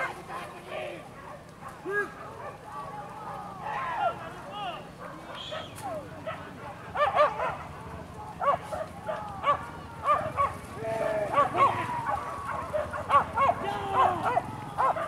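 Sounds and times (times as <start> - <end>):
dogs yelping and barking: 4.9 - 7.8, 8.4 - 10.6, 11.3 - 15.0.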